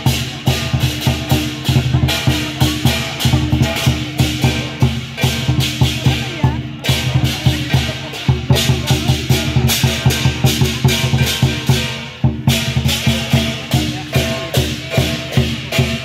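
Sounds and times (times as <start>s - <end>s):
clashing cymbals: 0.0s - 16.0s
lion dance drum beating: 0.0s - 16.0s.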